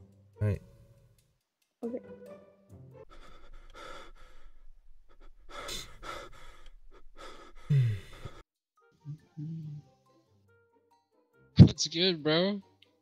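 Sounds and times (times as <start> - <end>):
person sighing: 7.2 - 8.4.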